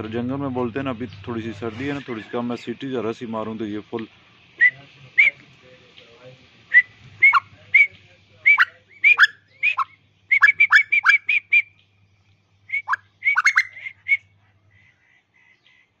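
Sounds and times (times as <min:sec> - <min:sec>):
bird calling sharp notes: 0:06.7 - 0:11.8, 0:12.7 - 0:15.9.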